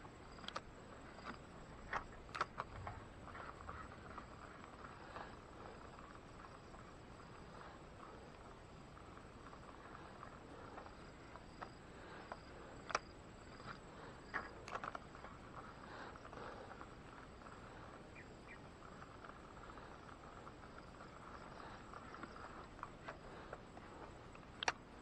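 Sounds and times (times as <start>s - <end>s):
insects chirring: 0.0s - 25.0s
sharp clicks: 0.4s - 3.5s, 10.7s - 15.1s, 18.2s - 24.9s.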